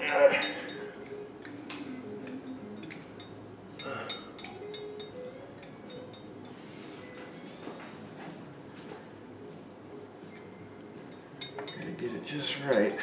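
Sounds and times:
light metallic clinks and taps: 11.0 - 11.9.

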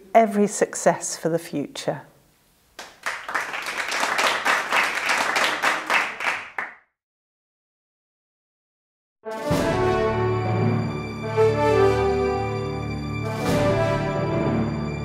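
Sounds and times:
applause: 2.8 - 6.8.

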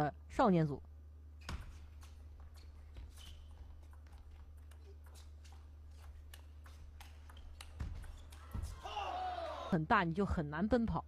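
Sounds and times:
table tennis ball clicking: 3.8 - 8.5.

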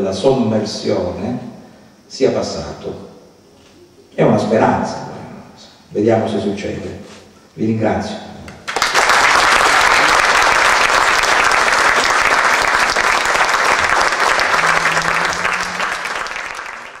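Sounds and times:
audience applause: 8.7 - 17.0.

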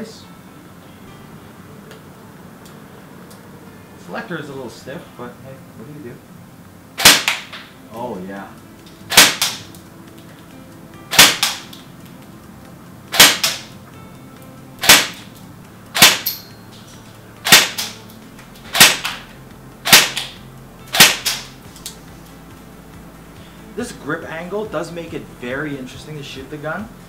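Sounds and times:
airsoft rifle shots: 7.0 - 7.7, 9.1 - 9.7, 11.1 - 11.8, 13.1 - 13.7, 14.8 - 15.3, 15.9 - 16.4, 17.4 - 18.0, 18.7 - 21.6.

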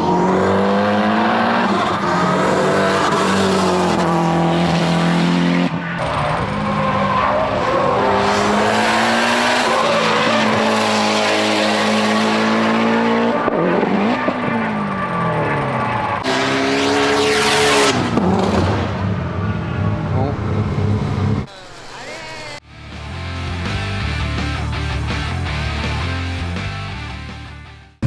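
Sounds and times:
car engine at full throttle: 0.0 - 21.5.

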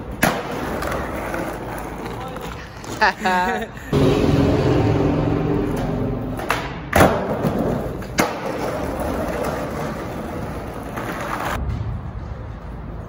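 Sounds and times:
skateboard clacks: 0.0 - 3.2, 5.7 - 11.6
skateboard wheels rolling on concrete: 0.0 - 4.1, 5.0 - 13.0.

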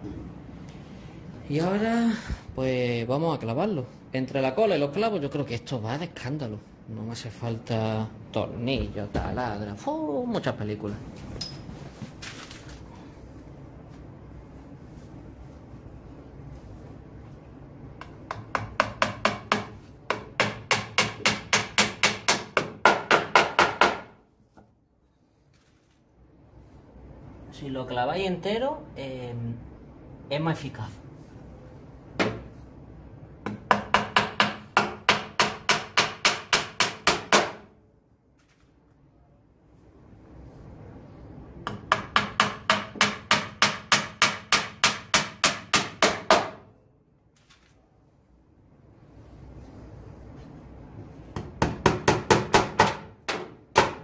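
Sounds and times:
hammer driving nails into wood: 41.7 - 46.6, 51.6 - 54.0.

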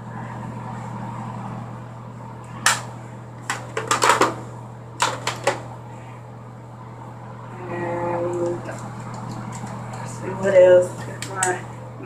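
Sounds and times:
steady low hum: 0.0 - 12.0
makeup items clattering on counter: 3.5 - 4.4, 5.0 - 5.6, 8.6 - 10.1.

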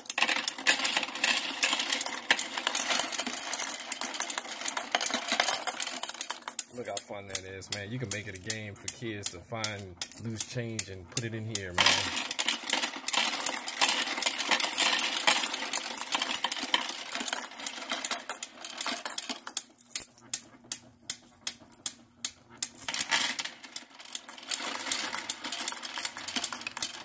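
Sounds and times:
electric coin sorter running: 0.0 - 8.3, 11.6 - 20.3, 22.6 - 27.0
coins clattering: 0.0 - 8.4, 11.6 - 20.4, 22.6 - 27.0.

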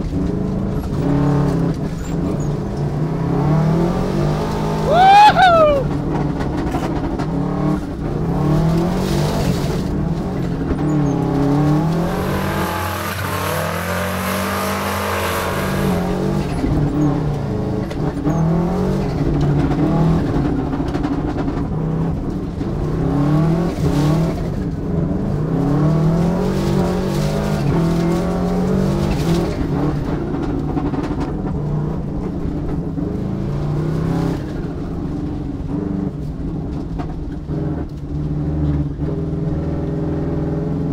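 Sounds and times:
rally car engine revving: 0.0 - 40.9.

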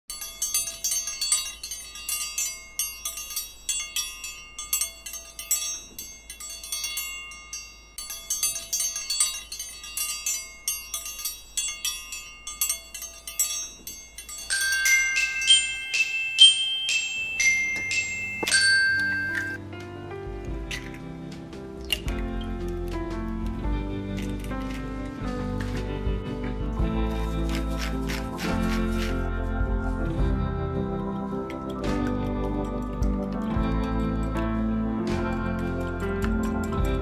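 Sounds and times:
tinkling mallet percussion melody: 0.0 - 19.6, 24.2 - 37.0
ringing chime notes: 0.1 - 19.6.

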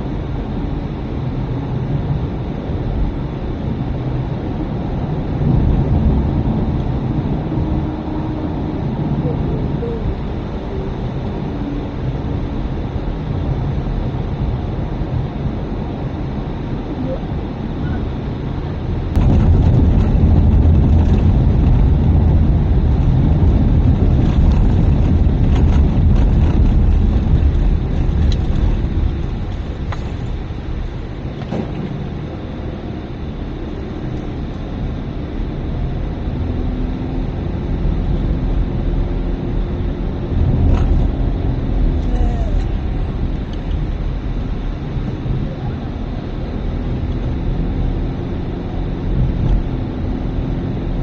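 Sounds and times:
car engine and tyres rumbling: 0.0 - 51.0.

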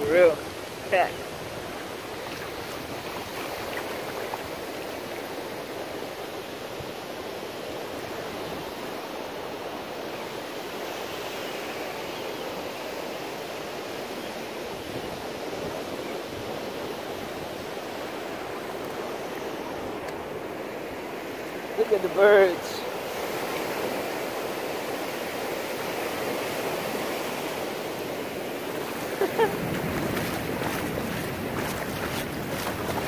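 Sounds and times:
ocean surf breaking: 16.9 - 33.0.

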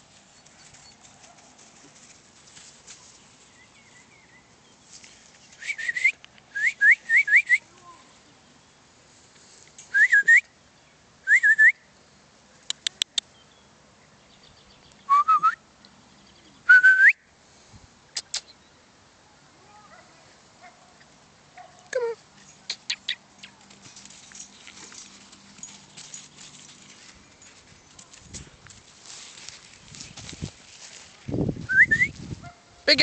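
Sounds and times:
person whistling: 5.6 - 7.6, 9.9 - 10.4, 15.1 - 15.6, 16.7 - 17.2, 31.7 - 32.2.

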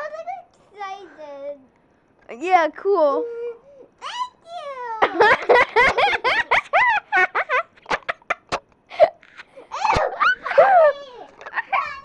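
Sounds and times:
child laughing and giggling: 4.9 - 12.0.

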